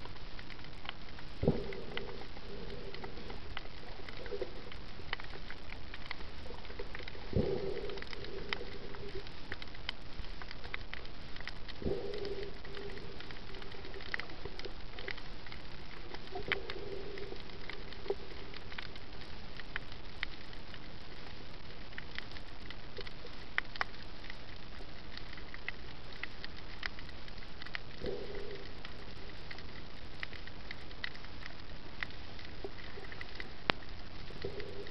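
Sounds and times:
low hum: 0:00.0 - 0:21.4
reef clicks and crackles: 0:00.0 - 0:34.9
underwater hiss: 0:01.4 - 0:05.5, 0:06.4 - 0:09.5, 0:11.8 - 0:15.1, 0:16.0 - 0:18.7.

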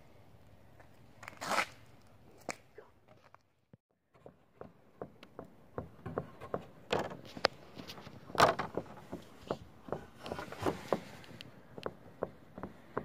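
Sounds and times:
footsteps on wooden boards: 0:04.1 - 0:13.0.

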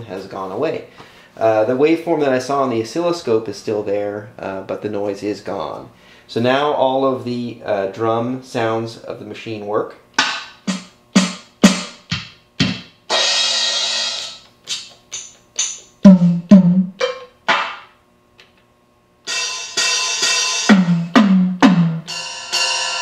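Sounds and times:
drum machine hits: 0:10.2 - 0:18.0, 0:19.3 - 0:23.0
cymbal ringing: 0:19.3 - 0:21.2, 0:22.0 - 0:23.0.

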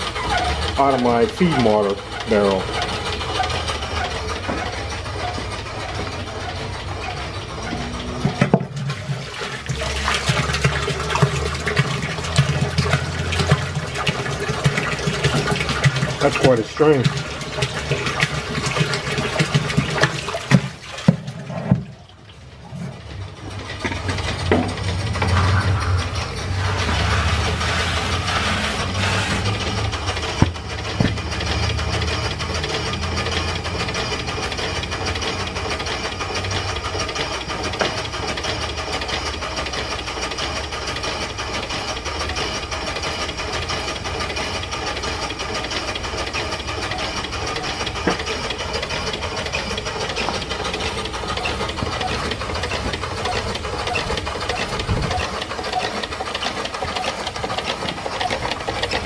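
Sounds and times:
steam pump clattering: 0:00.0 - 0:59.0
low rumble: 0:23.0 - 0:27.6.

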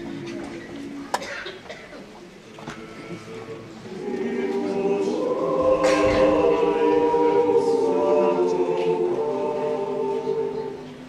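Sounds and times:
mixed choir singing: 0:03.9 - 0:11.0.

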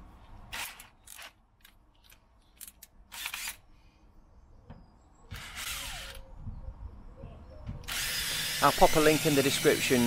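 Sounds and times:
cordless drill whine: 0:05.4 - 0:06.2, 0:07.8 - 0:10.0.

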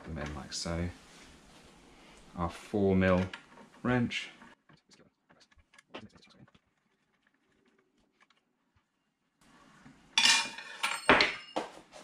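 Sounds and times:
metallic clatter and handling noise: 0:10.2 - 0:11.8.

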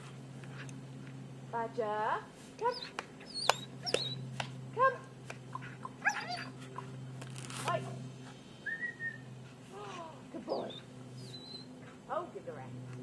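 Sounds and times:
steady low hum: 0:00.0 - 0:13.0
dog whining and yelping: 0:02.7 - 0:04.3, 0:05.5 - 0:07.1, 0:08.6 - 0:11.8.

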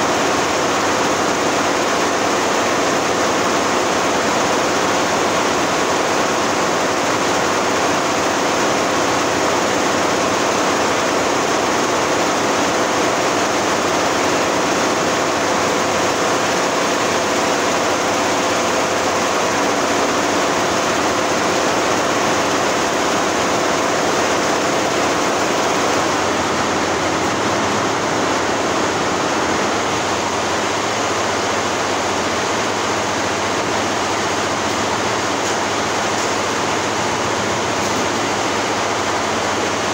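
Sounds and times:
embroidery machine stitching: 0:00.1 - 0:28.1.

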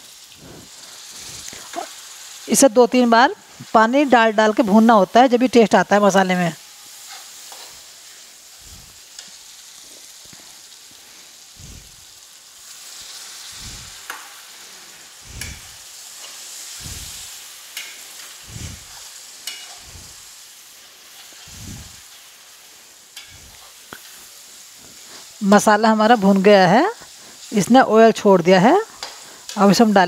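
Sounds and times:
spice paste sizzling in oil: 0:00.0 - 0:30.0
metal ladle scraping a pan: 0:17.1 - 0:20.3, 0:23.2 - 0:23.8.

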